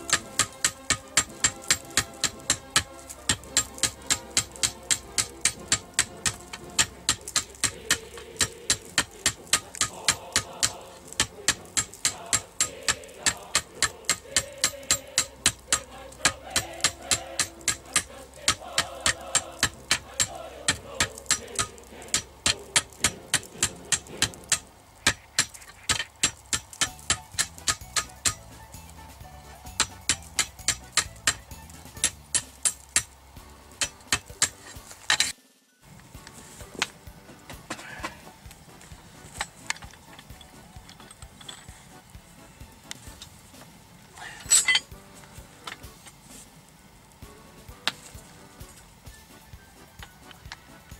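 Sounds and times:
hammer striking steel on anvil: 0.0s - 35.4s, 44.2s - 46.0s.

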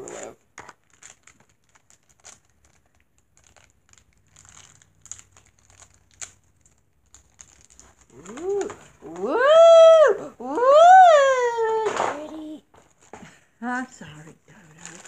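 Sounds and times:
plastic package crinkling and tearing: 0.0s - 9.3s, 14.5s - 15.0s.

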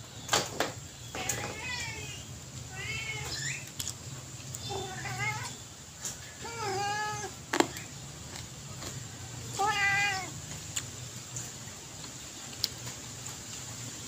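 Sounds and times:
cat meowing: 1.2s - 3.6s, 4.6s - 5.6s, 6.4s - 7.4s, 9.4s - 10.5s.

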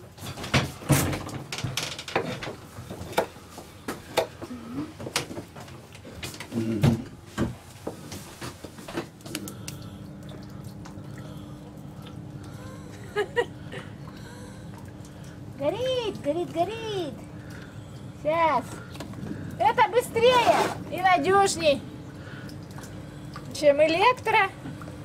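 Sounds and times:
steady low hum: 0.0s - 25.0s
kitchen knocks and clatter: 0.2s - 3.3s.

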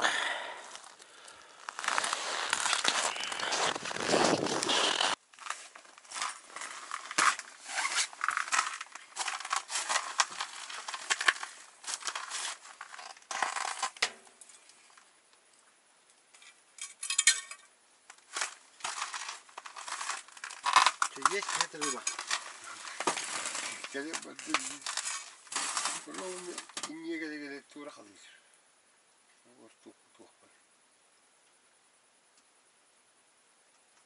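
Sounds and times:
clothing and gear rustling: 0.6s - 13.9s, 18.2s - 26.8s.

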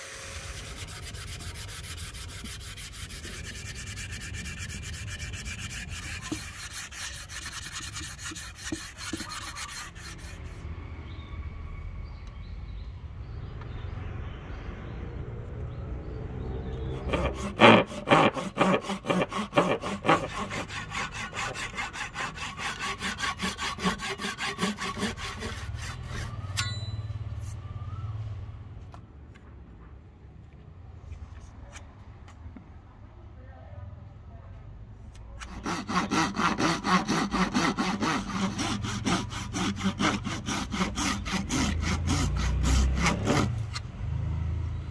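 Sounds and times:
hand saw cutting wood: 0.0s - 10.6s, 16.8s - 26.7s, 35.4s - 43.9s
fast scratchy rubbing: 0.4s - 10.6s, 17.0s - 26.4s, 35.4s - 43.8s.

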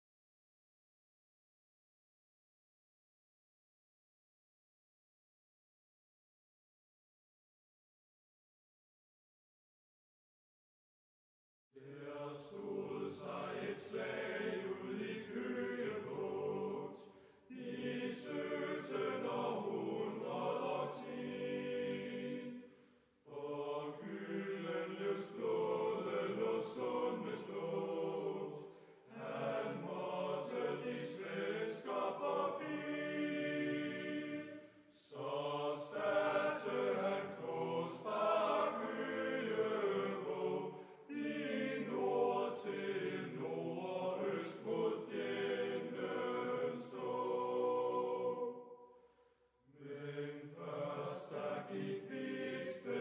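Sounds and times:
choir singing slow chant: 11.8s - 53.0s.

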